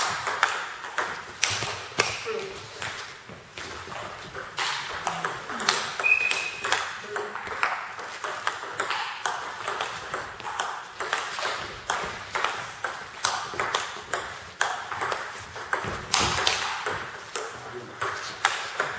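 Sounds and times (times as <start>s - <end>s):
table tennis ball clicking: 4.5s - 18.9s
brief high squeak: 6.0s - 6.7s.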